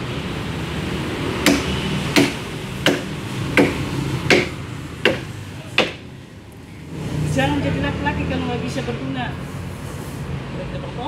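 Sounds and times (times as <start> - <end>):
machete chopping tree trunk: 1.4 - 6.1.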